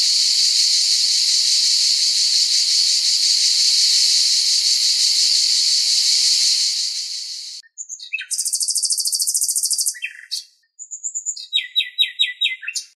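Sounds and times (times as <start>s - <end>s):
cicadas buzzing: 0.0s - 7.6s, 8.3s - 10.0s
nightingale singing: 0.0s - 12.9s.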